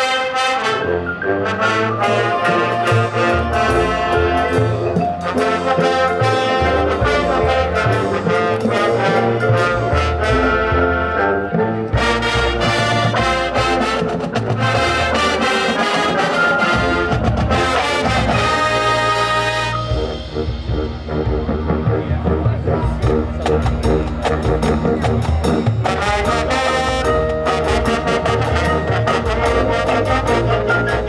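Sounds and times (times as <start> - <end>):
marching band brass: 0.0 - 31.0
percussion hits: 11.9 - 31.0.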